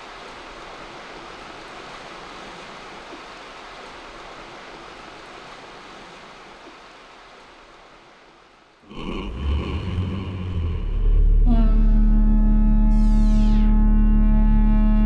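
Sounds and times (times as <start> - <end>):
river water rushing: 0.0 - 11.3.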